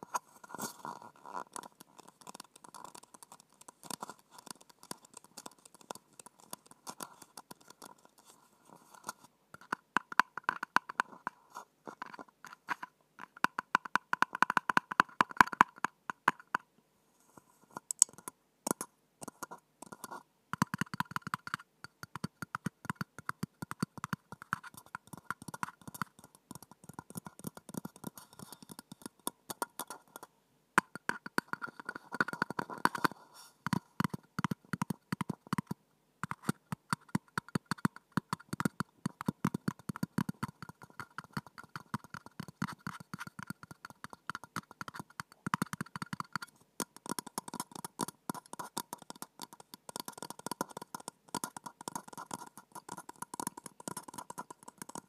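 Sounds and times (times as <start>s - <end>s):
fingertips tapping on glass: 17.8s - 30.0s, 33.7s - 55.0s.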